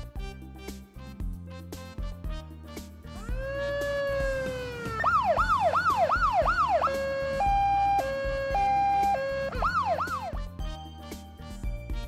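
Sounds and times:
steady low beat: 3.2 - 10.0
emergency vehicle siren: 3.2 - 10.4.

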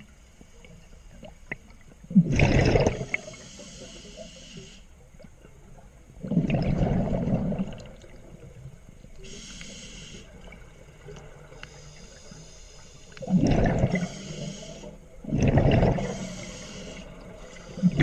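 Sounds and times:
bursts of exhaled bubbles: 2.1 - 3.3, 6.2 - 8.1, 13.2 - 14.1, 15.2 - 16.2
air hissing through regulator: 3.2 - 4.9, 9.2 - 10.3, 13.9 - 15.0, 16.0 - 18.0.

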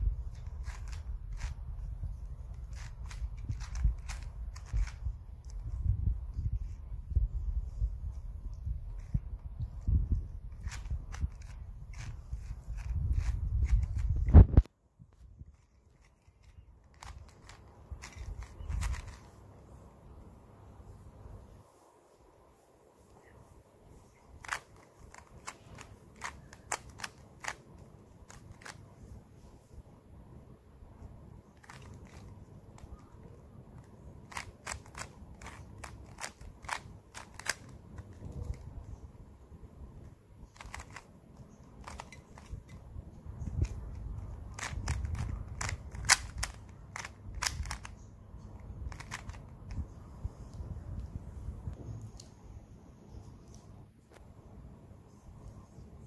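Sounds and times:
soft handling rumble: 0.0 - 19.8, 30.9 - 54.2
puzzle cube plastic clicks: 0.3 - 1.6, 2.4 - 5.6, 10.5 - 14.7, 15.5 - 19.3, 24.4 - 28.8, 31.5 - 38.9, 40.5 - 42.8, 43.4 - 49.8.

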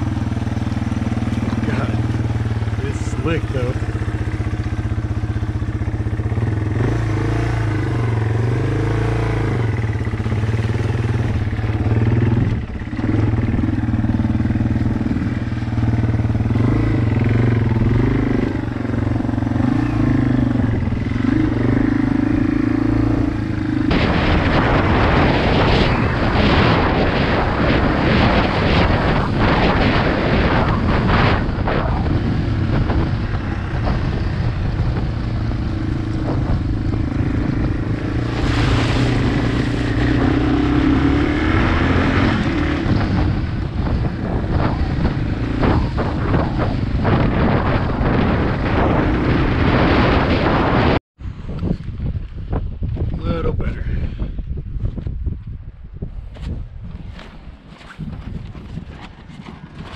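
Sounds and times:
motorcycle engine running: 0.0 - 55.7
loud rushing noise: 23.8 - 35.6, 36.3 - 51.0.

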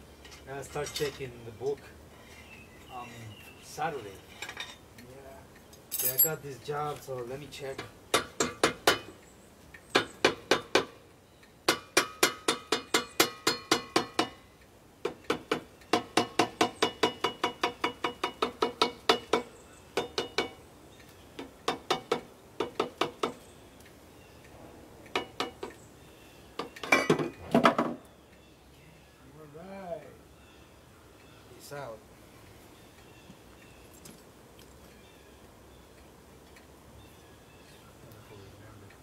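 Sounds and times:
hand tool tapping on metal: 7.6 - 9.2, 11.7 - 14.4, 15.0 - 23.4, 25.1 - 25.8.

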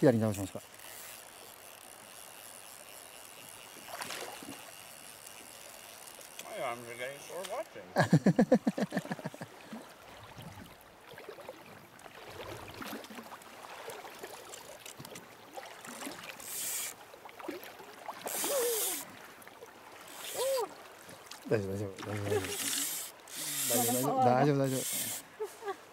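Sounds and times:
fish splashing at surface: 3.8 - 5.4
river hissing: 15.9 - 17.0, 18.2 - 19.2, 20.0 - 20.8, 22.2 - 25.4.

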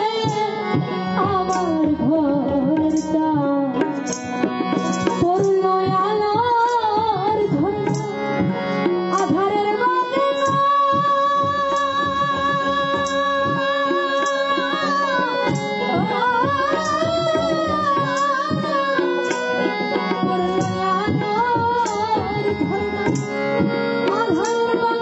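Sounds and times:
percussion and instrumental accompaniment: 0.0 - 25.0.

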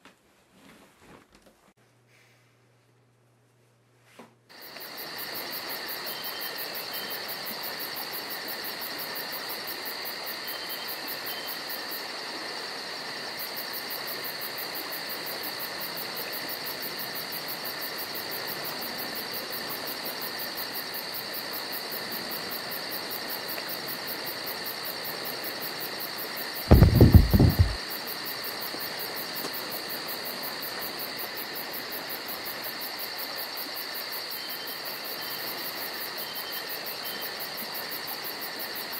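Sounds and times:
crickets and insects chirping: 4.5 - 38.9
loud dull thumps: 26.7 - 27.8.

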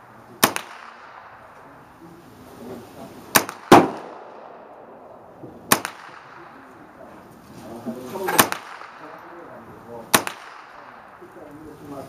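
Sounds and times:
gunshots: 0.4 - 1.8, 3.3 - 7.0, 8.2 - 11.4.

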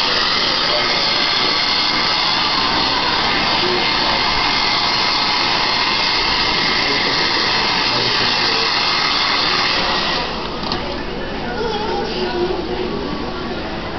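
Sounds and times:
hair dryer blowing: 0.0 - 10.9.

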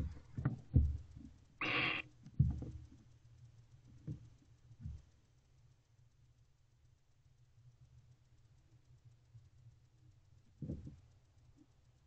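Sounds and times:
owl hissing: 1.6 - 2.1.

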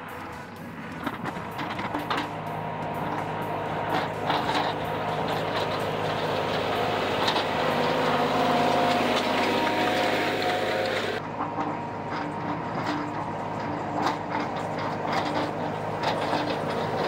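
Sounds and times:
diesel tractor engine running: 0.0 - 17.0.

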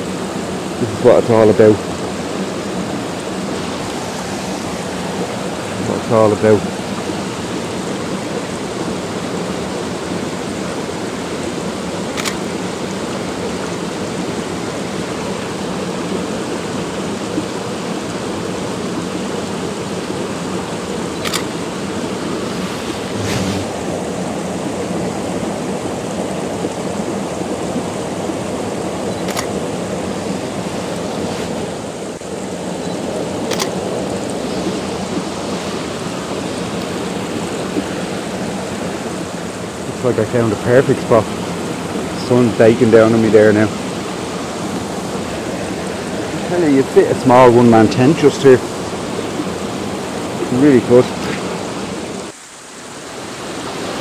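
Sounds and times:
stream cascading over rocks: 0.0 - 54.0
faint clicks: 12.1 - 12.4, 29.2 - 29.6, 33.5 - 34.4.

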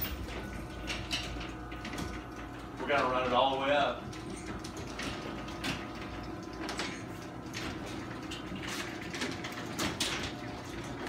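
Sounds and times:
garage door motor hum: 0.0 - 11.0
rollers clicking and clunking: 0.0 - 11.0.

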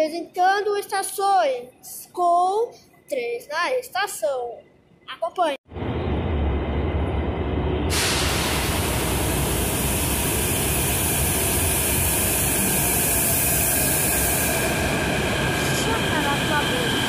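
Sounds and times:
train rumbling: 5.7 - 17.0
train brakes hissing: 7.9 - 17.0.

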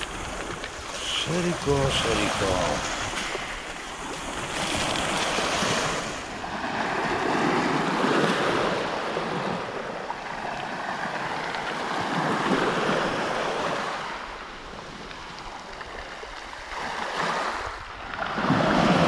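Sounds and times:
waves washing over pebbles: 0.0 - 19.0.

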